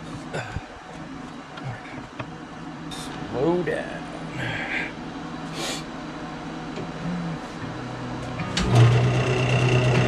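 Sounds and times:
wood lathe motor humming: 0:08.6 - 0:10.0.

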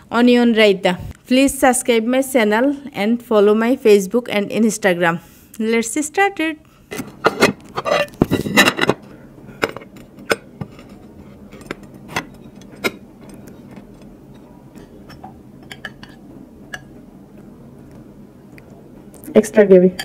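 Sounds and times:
plates and bowls clinking: 0:06.9 - 0:17.0.

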